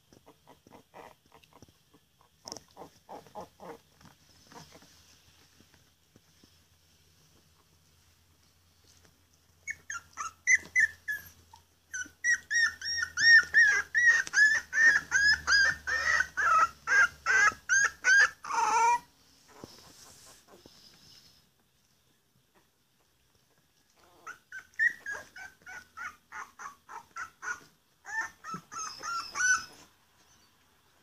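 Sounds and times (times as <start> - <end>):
puppy squealing and yelping: 0.2 - 5.0, 9.6 - 20.6, 24.0 - 30.5.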